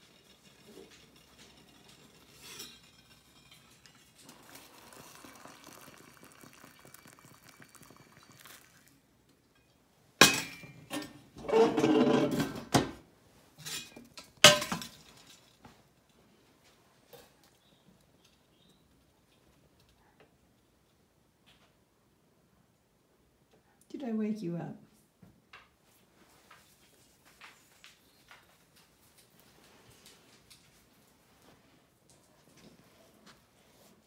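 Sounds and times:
metal kitchenware clanking: 0.0s - 4.5s, 9.6s - 12.9s, 13.6s - 15.4s
metal rattling and scraping: 0.0s - 4.7s
faint steady hiss: 0.0s - 11.4s.

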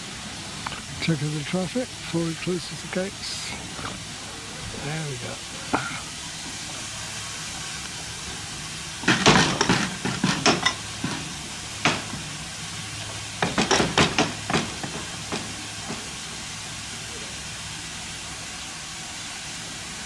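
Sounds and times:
metal gates clanking and rattling: 9.0s - 12.3s, 13.0s - 16.1s.

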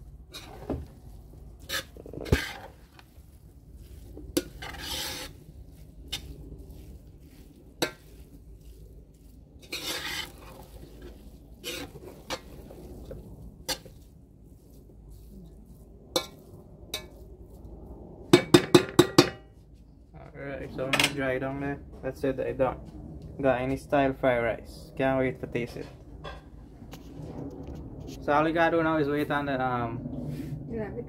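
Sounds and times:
rice scraping rustles: 0.0s - 17.7s.

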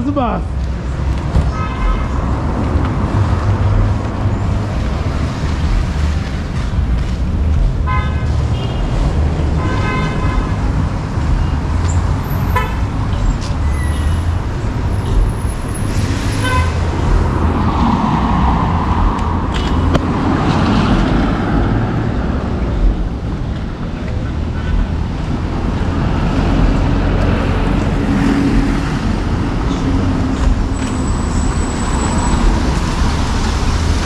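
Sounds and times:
traffic rumble: 0.0s - 34.0s
car horn toots: 12.5s - 12.8s.

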